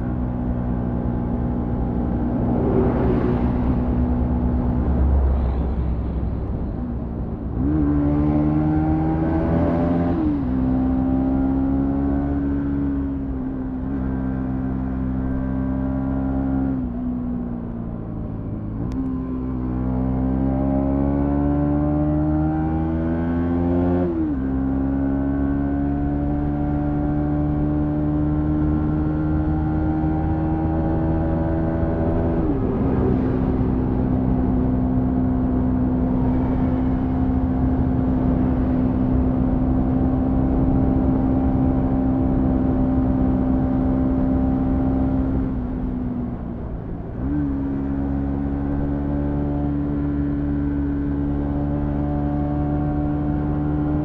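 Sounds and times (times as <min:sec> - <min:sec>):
motorcycle engine accelerating: 0:00.0 - 0:05.2, 0:18.9 - 0:54.0.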